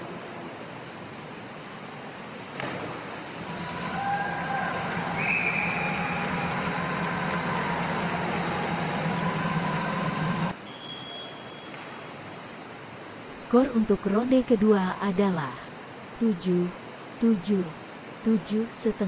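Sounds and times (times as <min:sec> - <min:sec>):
background hum and hiss: 0:00.0 - 0:19.0.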